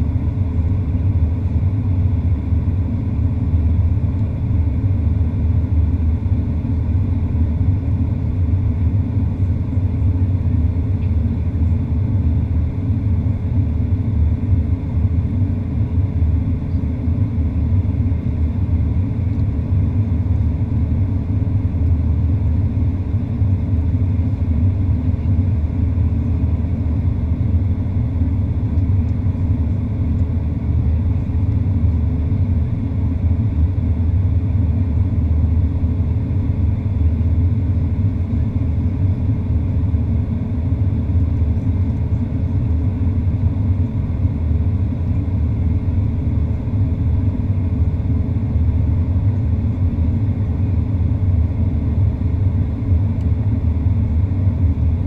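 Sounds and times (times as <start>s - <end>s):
airplane cabin rumble: 0.0s - 55.0s
faint steady hum: 0.0s - 55.0s.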